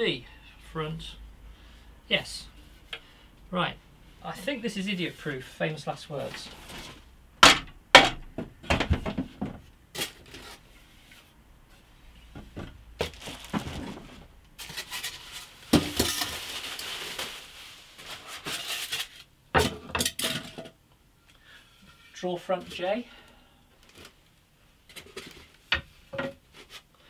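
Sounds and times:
plastic wrapping crinkling: 13.0 - 19.2.

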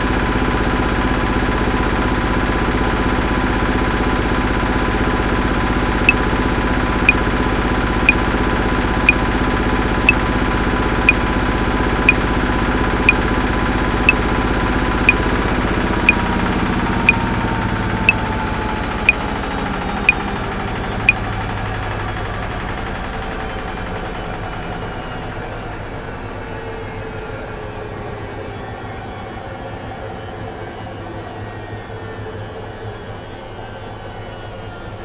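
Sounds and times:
washing machine whining: 2.6 - 32.3.

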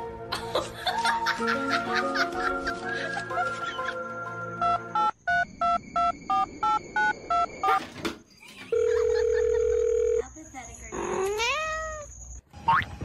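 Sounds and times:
steady phone tone: 8.7 - 10.2.

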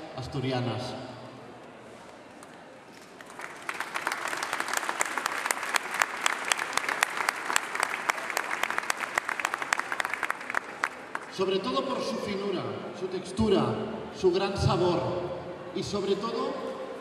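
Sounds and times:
crowd applauding: 2.4 - 11.6.

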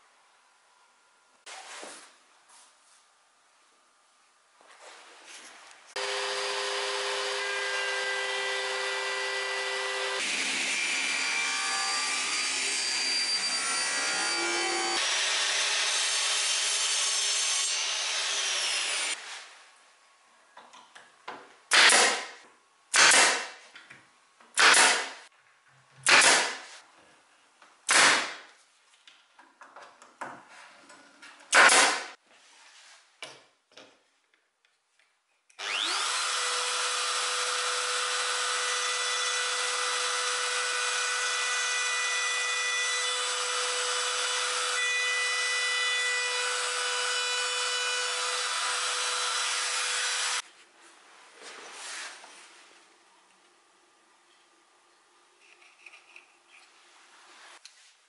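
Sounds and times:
router table cutting wood: 6.0 - 19.2, 35.6 - 50.4
pneumatic nailer firing: 21.7 - 23.6, 24.5 - 25.2, 26.0 - 26.7, 27.9 - 28.5, 31.5 - 32.2.

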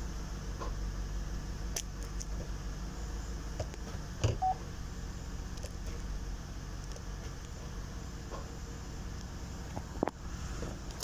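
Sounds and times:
dashboard warning beep: 4.4 - 4.6.

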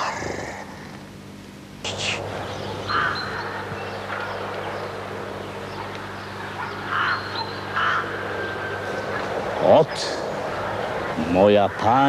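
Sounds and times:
low hum and hiss: 0.0 - 12.0
crow cawing: 2.6 - 4.4, 6.5 - 9.3, 10.5 - 12.0.

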